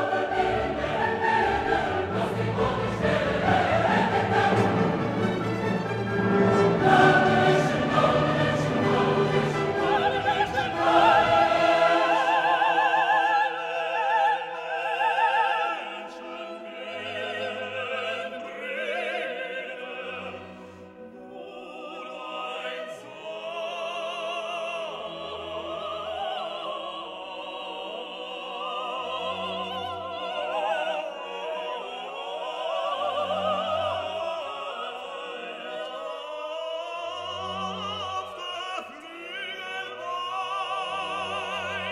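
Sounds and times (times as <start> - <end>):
operatic singing with orchestra: 0.0 - 41.9.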